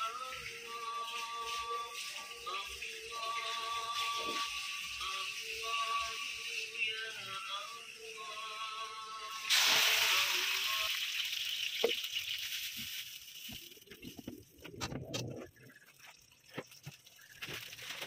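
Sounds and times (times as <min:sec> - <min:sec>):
liquid sizzling in hot wok: 0:00.0 - 0:13.9
quiet bubbling: 0:11.6 - 0:18.0.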